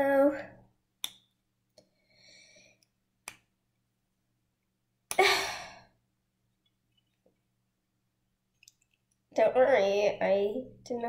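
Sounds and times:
faint breath: 0:01.8 - 0:02.9
person sighing: 0:05.1 - 0:06.0.

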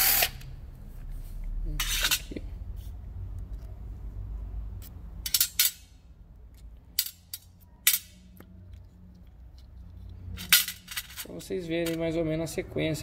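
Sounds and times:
metal parts clinking on hard surface: 0:01.8 - 0:02.4, 0:04.8 - 0:05.9, 0:06.9 - 0:08.4, 0:09.5 - 0:12.1.

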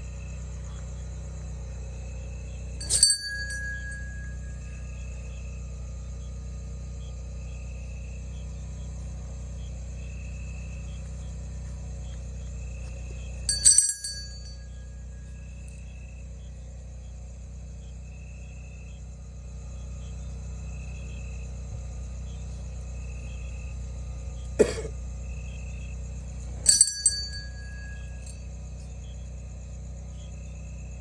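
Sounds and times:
low steady hum: 0:00.0 - 0:31.0
night insects calling: 0:00.0 - 0:31.0
sharp bright clink: 0:02.8 - 0:04.9, 0:13.5 - 0:15.0, 0:26.7 - 0:28.4.

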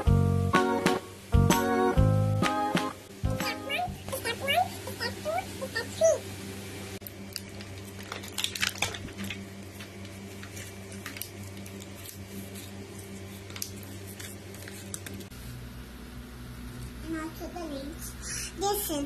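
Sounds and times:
steady low hum: 0:00.0 - 0:19.0
plastic film crinkling: 0:07.0 - 0:15.3.

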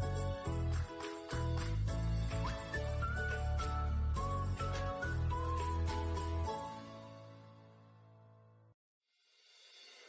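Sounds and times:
instrumental music with beat: 0:00.0 - 0:06.9.

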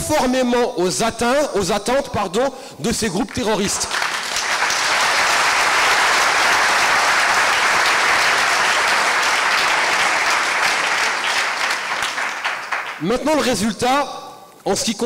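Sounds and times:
audience applauding: 0:03.3 - 0:13.1.

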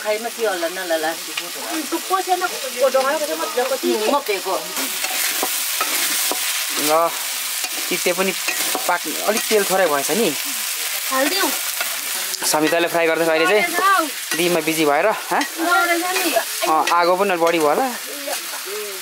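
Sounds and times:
food sizzling in a pan: 0:00.0 - 0:19.0
metal spatula scraping a pan: 0:02.8 - 0:10.2, 0:11.6 - 0:17.7.

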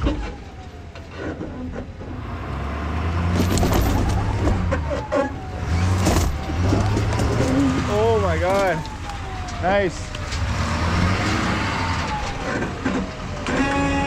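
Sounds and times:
knocks and clunks: 0:03.3 - 0:14.0
truck engine running: 0:03.3 - 0:14.0.

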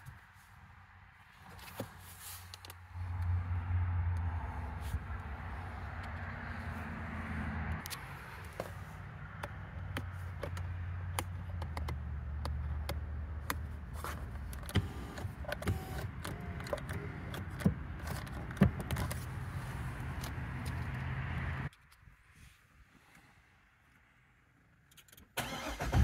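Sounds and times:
power seat motor running: 0:14.7 - 0:17.6.

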